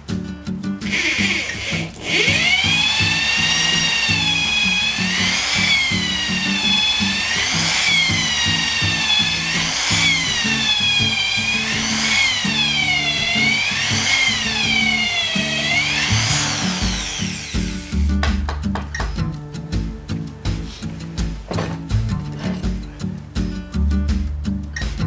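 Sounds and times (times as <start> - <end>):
background music with steady beat: 0.0 - 25.0
electric drill boring through wood: 0.8 - 18.1.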